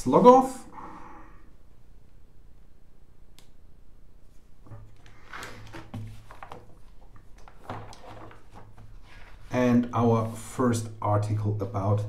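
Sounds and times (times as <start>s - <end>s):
plastic parts rustling and clicking: 4.9s - 9.4s.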